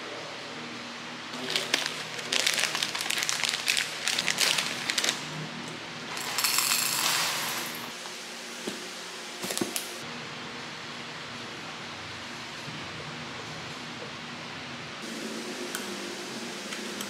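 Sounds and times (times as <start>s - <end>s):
plastic pouch rustling: 1.4s - 5.2s.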